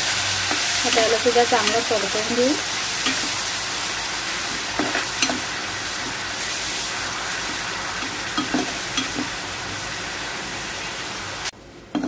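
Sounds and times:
onion frying in hot oil: 0.0s - 12.0s.

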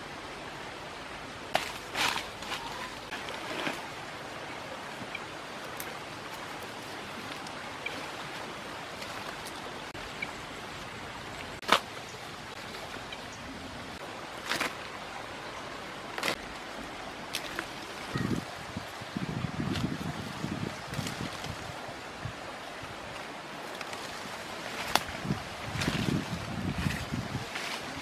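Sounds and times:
steady outdoor hiss: 0.0s - 28.0s
fruit snapping off branches: 24.9s - 25.1s.

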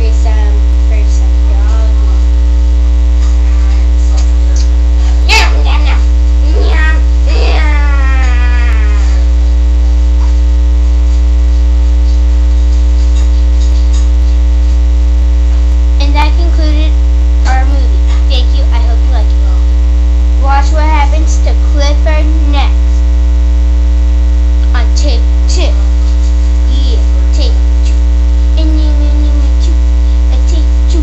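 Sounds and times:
electrical mains hum: 0.0s - 31.0s.

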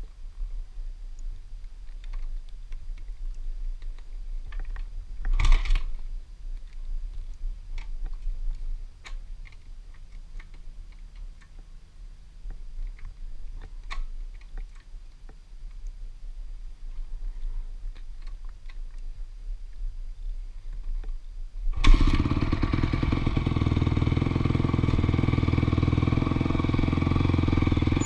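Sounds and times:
light clicks and ticks: 1.1s - 11.7s, 12.4s - 16.0s, 16.9s - 19.1s.

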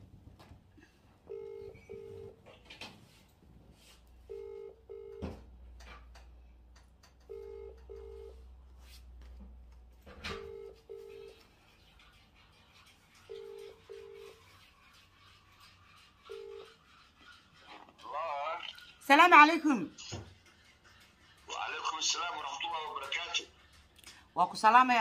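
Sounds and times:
phone ringback tone: 1.3s - 2.4s, 4.3s - 5.4s, 7.3s - 8.4s, 10.3s - 11.4s.

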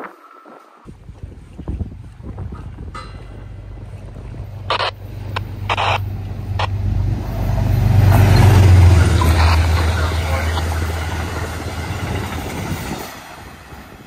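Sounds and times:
train coaches rumbling on rails: 1.9s - 14.0s
diesel locomotive engine drone: 2.3s - 14.0s
short bursts of noise: 4.7s - 6.8s.

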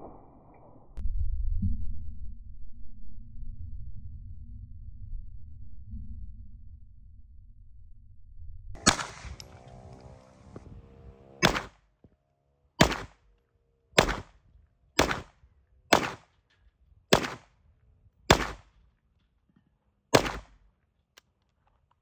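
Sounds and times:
carbine gunshots: 8.8s - 11.8s, 12.8s - 13.4s, 14.0s - 14.4s, 15.0s - 16.4s, 17.1s - 17.6s, 18.3s - 18.8s, 20.1s - 20.6s.

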